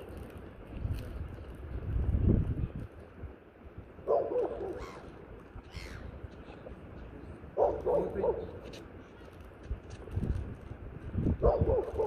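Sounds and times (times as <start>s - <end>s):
gulls squawking: 4.8s - 6.2s.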